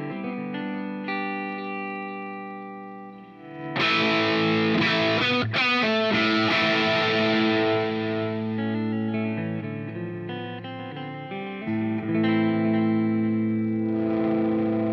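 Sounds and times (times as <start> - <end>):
clean electric guitar chord: 0.0 - 14.9
distorted electric guitar chord: 3.5 - 14.9.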